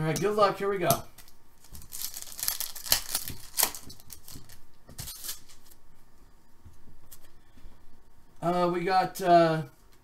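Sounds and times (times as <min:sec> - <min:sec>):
cards rustling: 0:01.2 - 0:05.8
wrapper crinkling and tearing: 0:01.6 - 0:05.8.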